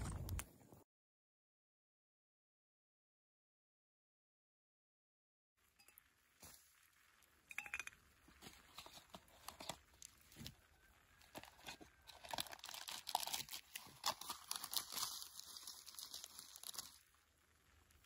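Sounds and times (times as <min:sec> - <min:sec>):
packet crinkling and tearing: 0:08.6 - 0:10.6, 0:11.2 - 0:17.1.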